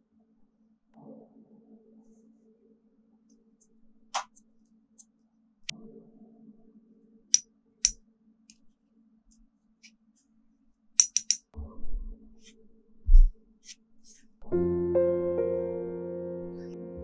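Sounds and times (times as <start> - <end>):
small tool clicks and taps: 11.0 - 11.4
soft low bump: 13.1 - 13.4.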